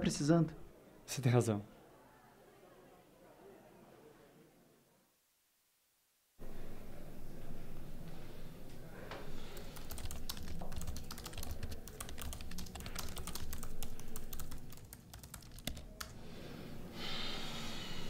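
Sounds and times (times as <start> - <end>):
computer keyboard typing: 9.6 - 16.2.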